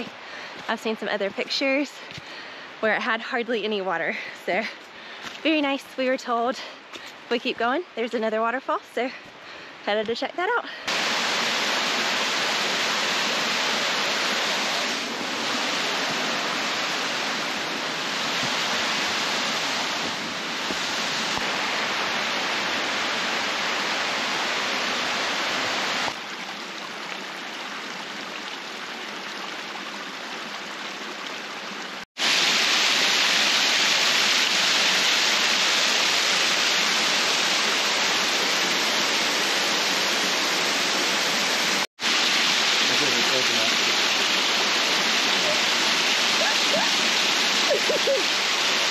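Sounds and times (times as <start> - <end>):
water rushing over small waterfall: 10.8 - 48.9.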